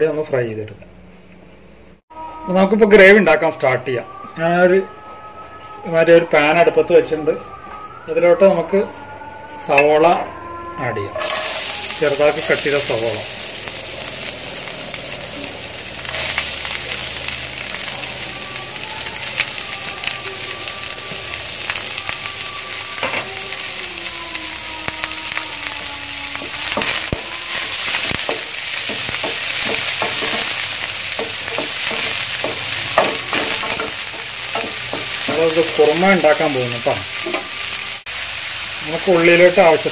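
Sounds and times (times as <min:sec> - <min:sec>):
onions sizzling in hot oil: 0:11.2 - 0:39.9
spatula scraping a pan: 0:26.3 - 0:35.8.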